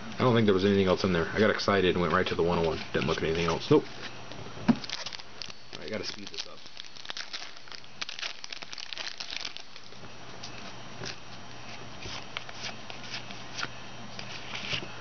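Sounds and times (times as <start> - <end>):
foil wrapper crinkling: 4.8 - 10.0.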